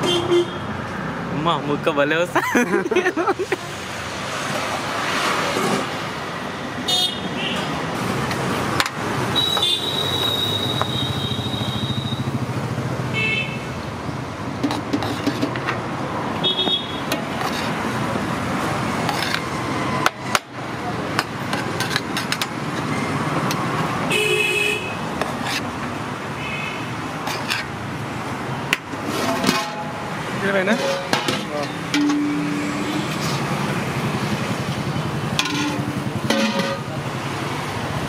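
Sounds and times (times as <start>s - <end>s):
vehicle horns honking: 0.0s - 0.7s, 6.9s - 7.7s, 9.4s - 12.3s, 13.1s - 13.7s, 16.4s - 17.1s, 24.1s - 25.0s
passing traffic engines: 0.0s - 38.0s.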